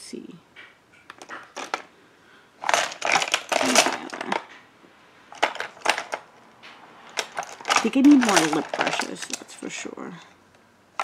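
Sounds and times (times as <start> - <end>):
makeup items clattering: 1.1 - 1.9, 2.6 - 4.6, 5.3 - 6.3, 7.1 - 9.9.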